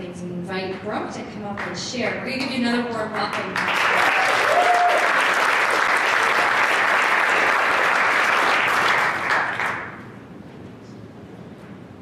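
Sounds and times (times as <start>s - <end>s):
congregation applauding: 3.3s - 10.0s.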